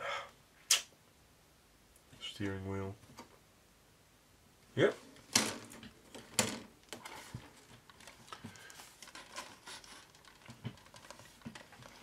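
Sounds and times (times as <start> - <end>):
plastic sprue clicking and rustling: 5.2 - 12.0.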